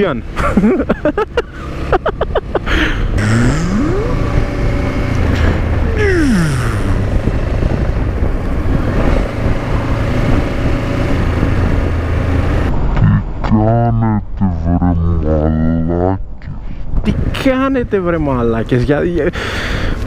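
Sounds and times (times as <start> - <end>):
wind and road noise: 0.0 - 20.0
motorcycle engine: 0.2 - 12.7.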